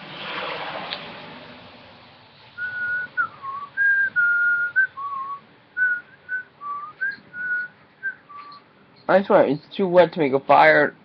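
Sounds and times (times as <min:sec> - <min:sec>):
person whistling a tune: 0:02.6 - 0:08.6.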